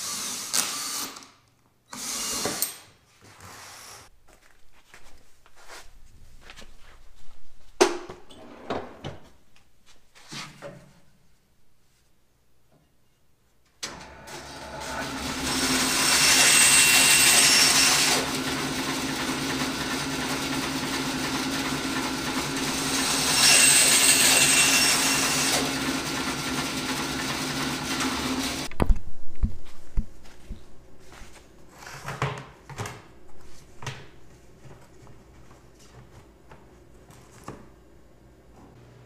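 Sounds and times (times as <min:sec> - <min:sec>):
bandsaw running: 0:14.3 - 0:28.7
bandsaw cutting wood: 0:14.4 - 0:28.7.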